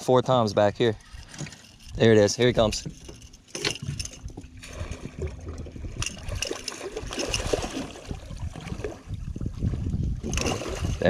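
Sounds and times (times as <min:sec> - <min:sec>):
water splashing from thrashing fish: 0:04.6 - 0:11.0.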